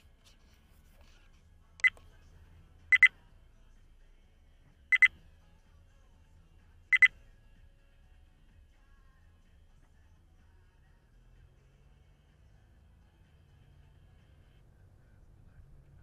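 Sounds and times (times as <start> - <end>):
faint low hum: 0.0 - 16.0
high-pitched electronic beeps: 2.9 - 3.1, 4.9 - 5.1.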